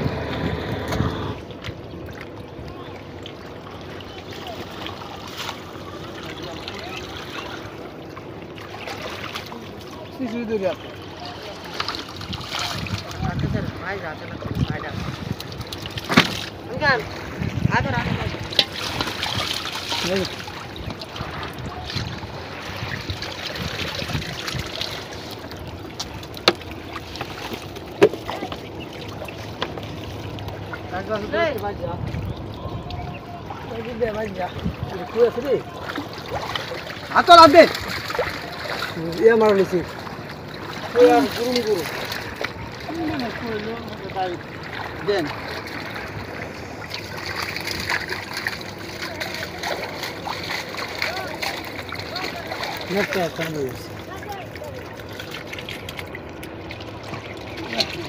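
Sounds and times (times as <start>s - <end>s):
water sloshing and splashing: 0.0s - 58.0s.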